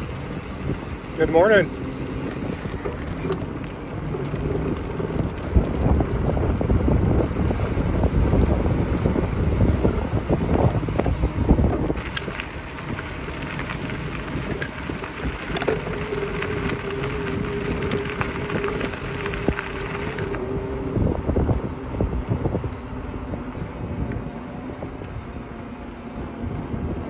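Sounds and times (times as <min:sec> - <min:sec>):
bicycle rolling rush: 0:00.0 - 0:27.0
wind buffeting microphone: 0:00.0 - 0:27.0.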